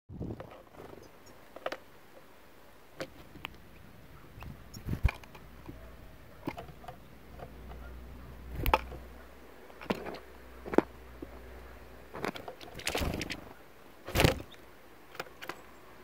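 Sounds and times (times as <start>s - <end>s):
faint low rumble: 3.3s - 13.8s.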